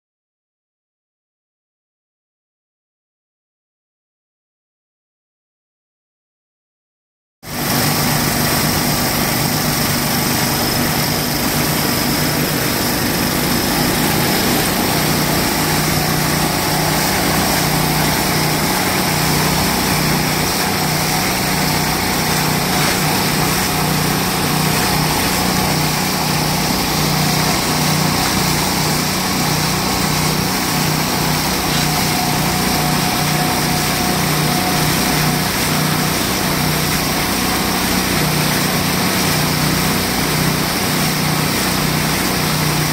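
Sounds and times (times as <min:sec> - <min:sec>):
small engine running: 0:07.5 - 0:42.9
muddy water splashing on ground: 0:08.6 - 0:42.9.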